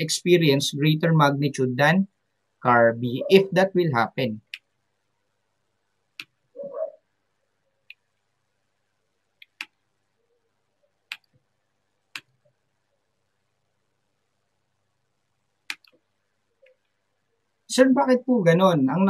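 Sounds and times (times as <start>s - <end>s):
computer mouse clicks: 6.2s - 6.4s, 7.8s - 8.3s, 9.4s - 9.9s, 11.1s - 11.5s, 12.1s - 12.5s, 15.6s - 17.0s.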